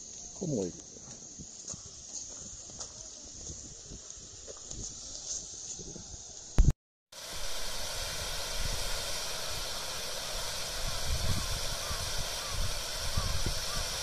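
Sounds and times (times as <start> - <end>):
fountain water splashing: 7.2 - 14.0.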